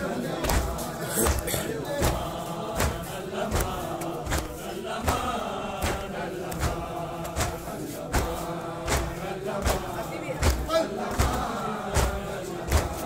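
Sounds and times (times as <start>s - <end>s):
men chanting a lament: 0.0s - 13.0s
hands striking chests: 0.4s - 13.0s.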